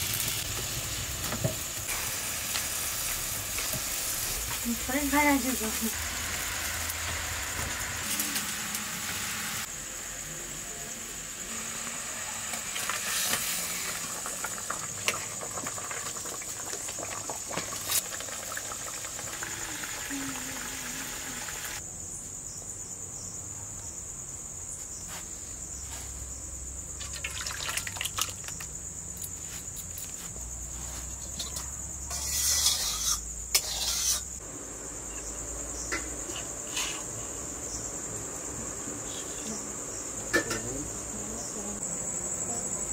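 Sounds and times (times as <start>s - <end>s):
oil and fish sizzling: 0.0s - 21.8s, 27.0s - 28.8s, 30.8s - 39.0s, 39.6s - 41.3s
crickets chirping: 0.0s - 42.9s.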